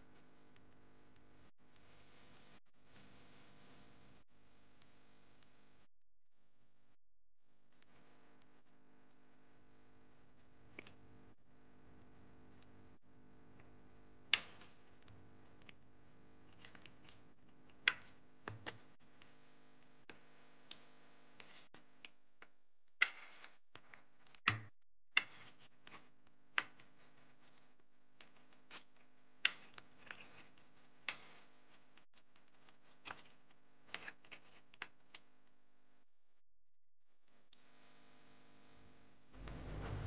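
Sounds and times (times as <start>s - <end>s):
faint hum: 38.6s - 40.0s.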